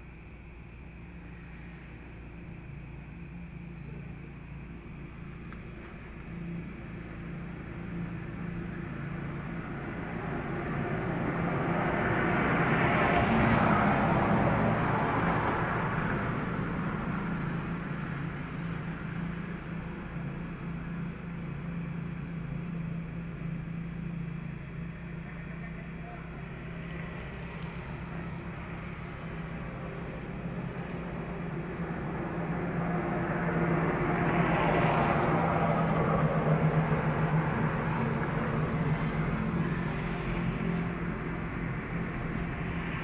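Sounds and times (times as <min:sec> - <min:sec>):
low background hum: 0:00.0 - 0:43.0
vehicle passing by: 0:05.3 - 0:20.7, 0:25.2 - 0:43.0.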